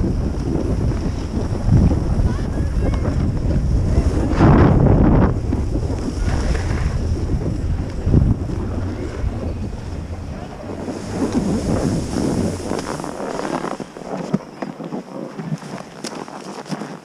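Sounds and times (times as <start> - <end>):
wind rushing over microphone: 0.0 - 16.5
skis hissing over snow: 5.3 - 14.9.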